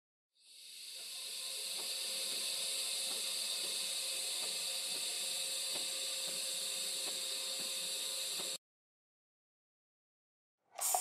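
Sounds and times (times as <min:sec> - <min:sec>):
welding arc hissing: 0:00.4 - 0:08.6, 0:10.8 - 0:11.0.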